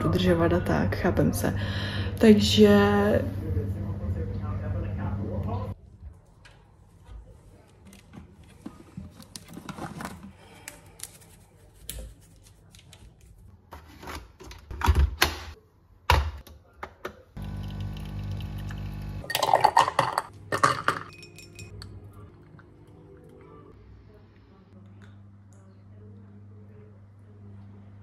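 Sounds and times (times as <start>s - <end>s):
coffee machine pump humming: 17.4s - 19.6s
glassware clinking on stone counter: 19.3s - 22.0s.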